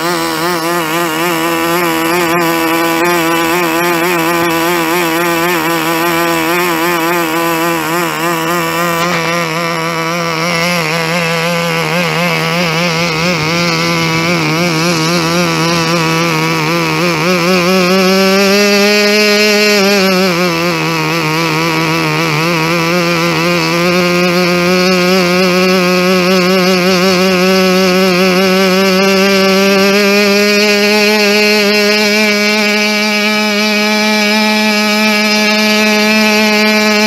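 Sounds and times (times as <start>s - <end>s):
model engine buzzing: 0.0s - 37.0s.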